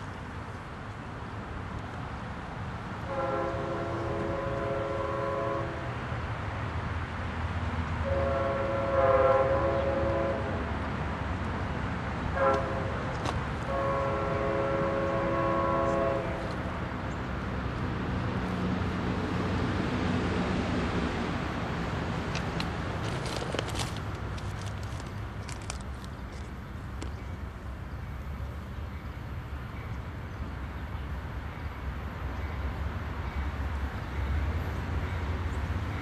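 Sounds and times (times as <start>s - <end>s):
low train rumble: 0.0s - 36.0s
locomotive air horn: 3.1s - 5.9s, 8.0s - 10.7s, 12.3s - 16.8s.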